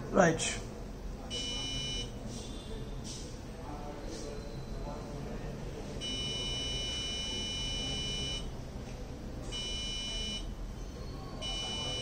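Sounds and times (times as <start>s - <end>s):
electronic buzzer beeping: 1.3s - 2.2s, 6.0s - 8.5s, 9.5s - 10.5s, 11.4s - 12.0s.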